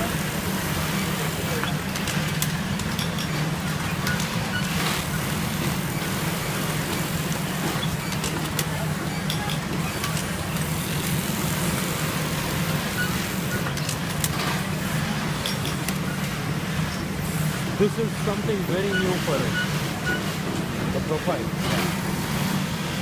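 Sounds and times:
sewing machine humming: 16.3s - 23.0s.

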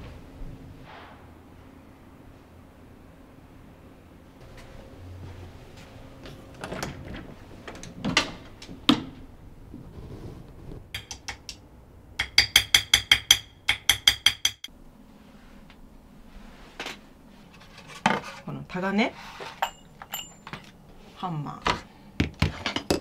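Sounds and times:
hammer tapping steel chisel: 11.0s - 11.6s, 12.2s - 14.7s.

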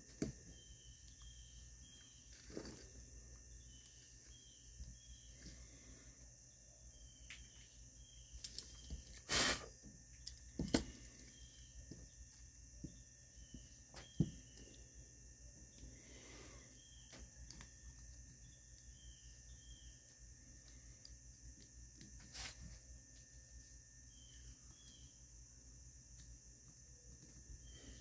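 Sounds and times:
faint chirps: 0.0s - 28.0s
steady high hiss: 7.1s - 9.9s.

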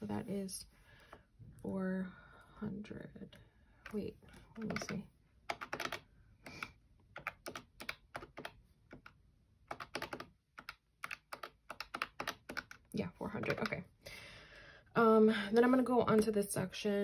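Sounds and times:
calculator keys clicking: 3.9s - 13.8s.

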